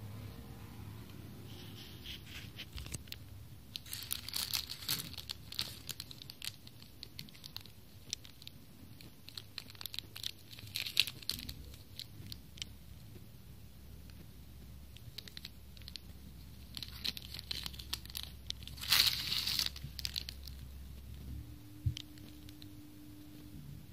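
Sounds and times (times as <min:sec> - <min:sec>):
plastic bag crinkling: 0:02.5 - 0:12.7, 0:15.0 - 0:21.2, 0:21.9 - 0:22.8.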